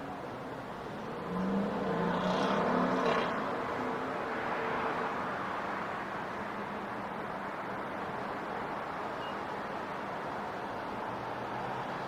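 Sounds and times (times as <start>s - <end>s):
traffic noise: 0.0s - 12.0s
vehicle passing: 0.9s - 5.7s.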